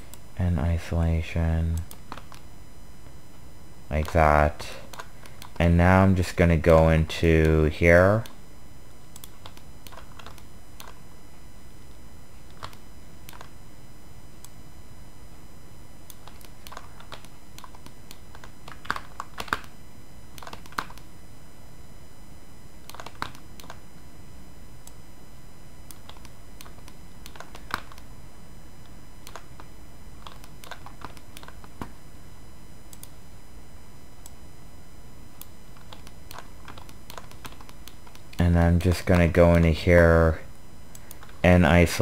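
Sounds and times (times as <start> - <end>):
keyboard and mouse clicks: 1.7 - 2.4, 9.1 - 11.0, 12.5 - 13.5, 16.1 - 19.7, 20.3 - 21.1, 22.8 - 23.8, 25.9 - 28.1, 29.2 - 32.0, 35.4 - 38.4.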